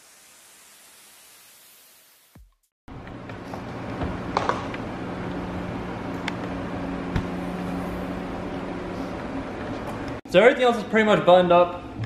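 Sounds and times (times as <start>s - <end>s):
steady low hum: 2.9s - 10.2s.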